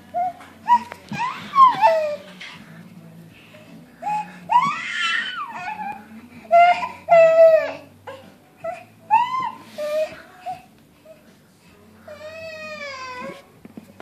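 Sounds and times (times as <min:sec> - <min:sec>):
baby crying: 0:04.0 - 0:10.7.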